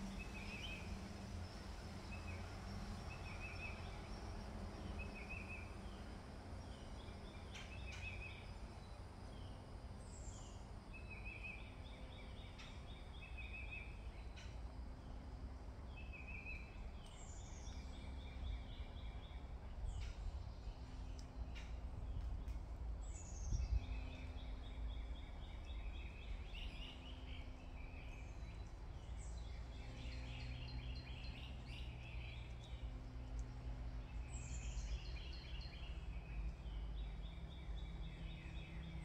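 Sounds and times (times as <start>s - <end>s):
songbirds singing: 0.0s - 39.0s
steady low rumble: 13.9s - 39.0s
faint clicks: 21.0s - 22.7s, 32.0s - 33.7s.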